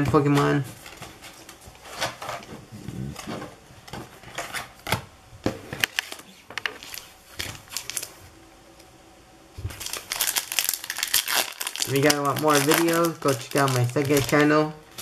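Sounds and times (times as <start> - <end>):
foil booster pack rustling: 5.9 - 8.2, 9.6 - 15.0.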